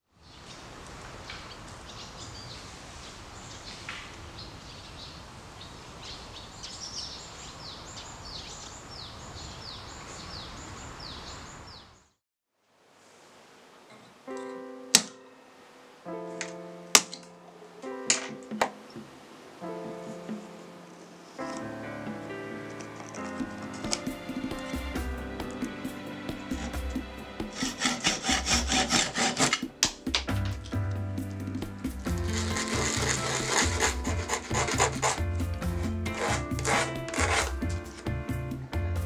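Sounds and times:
birds singing: 1.3s - 12.2s
pliers snapping wood: 15.0s - 15.2s, 16.4s - 17.3s, 27.8s - 30.8s
calm acoustic music: 29.6s - 39.0s.

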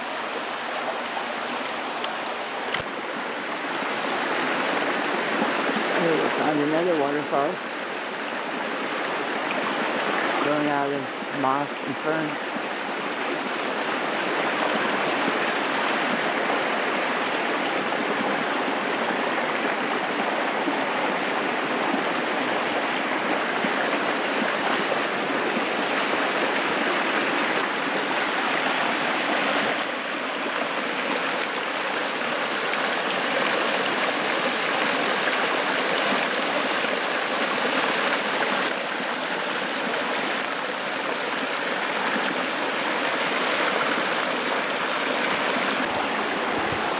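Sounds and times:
water rushing from small waterfall: 0.0s - 46.9s.

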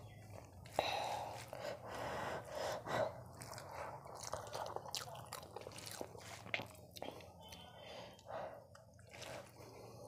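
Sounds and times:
breaths: 0.6s - 4.1s, 7.0s - 10.0s.

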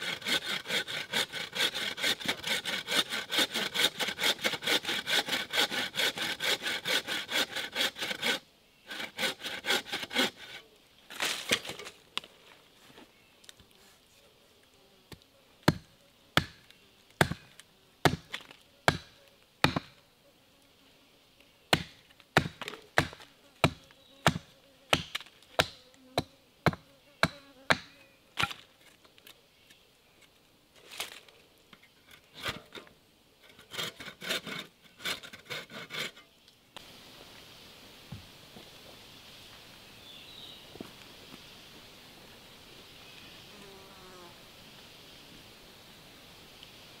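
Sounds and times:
blade chopping sapling stem: 21.8s - 28.6s.

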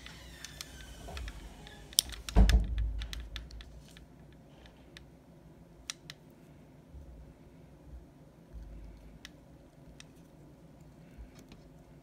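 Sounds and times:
clicks and taps of nails: 1.2s - 4.4s.

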